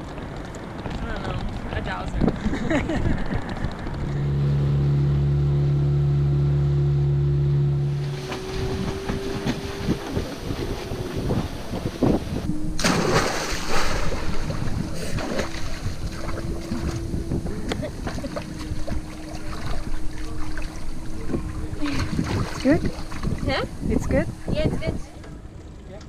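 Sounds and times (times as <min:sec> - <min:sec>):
steady low hum: 0:00.0 - 0:26.0
water splashing: 0:07.8 - 0:24.9
person splashing into water: 0:12.8 - 0:17.0, 0:21.8 - 0:23.4.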